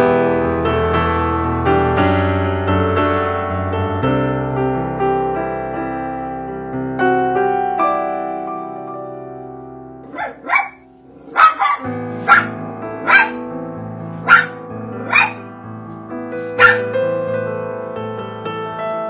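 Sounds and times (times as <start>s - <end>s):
soft piano music: 0.0s - 19.0s
dog barking: 10.1s - 13.4s, 14.2s - 15.4s, 16.4s - 16.9s.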